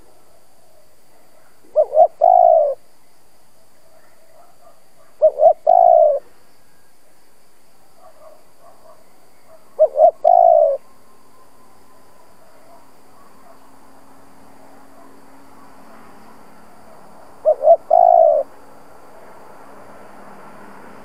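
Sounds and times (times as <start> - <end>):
dove cooing: 1.4 - 2.8, 3.9 - 6.3, 8.0 - 13.6, 16.8 - 18.6.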